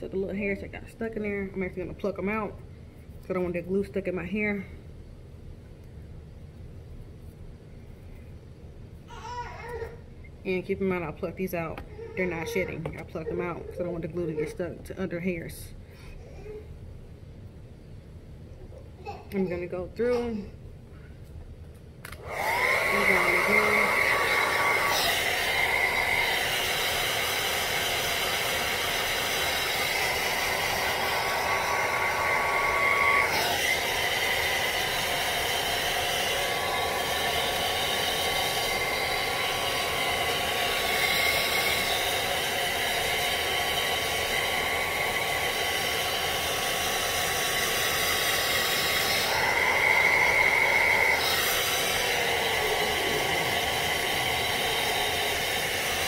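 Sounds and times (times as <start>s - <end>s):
hair dryer running: 22.1s - 56.0s.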